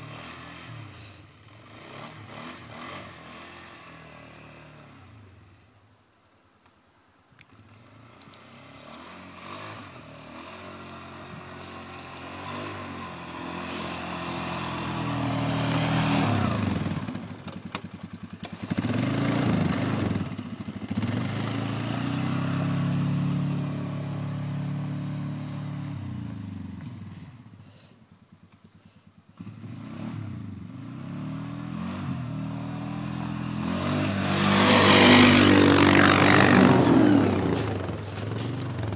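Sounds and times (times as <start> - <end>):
atv engine pulling under load: 7.6 - 27.6, 29.4 - 38.9
harsh rushing scrape: 33.7 - 38.9.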